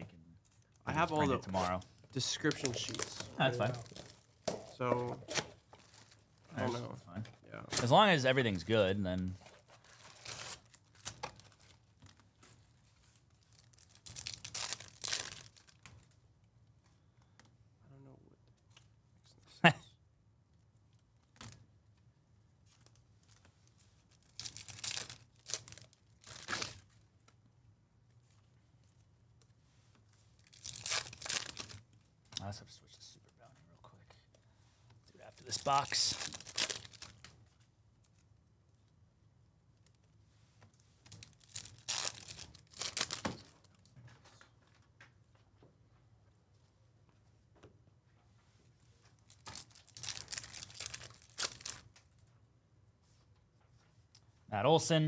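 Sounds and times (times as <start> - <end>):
foil wrapper tearing and crinkling: 1.6 - 4.2, 13.4 - 15.9, 24.1 - 26.9, 30.4 - 31.8, 35.5 - 37.3, 41.0 - 43.7, 49.2 - 51.9.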